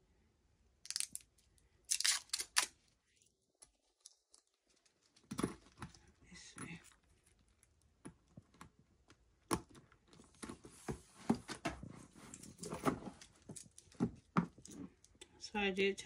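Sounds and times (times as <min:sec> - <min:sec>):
handling rustle: 0:10.0 - 0:15.1.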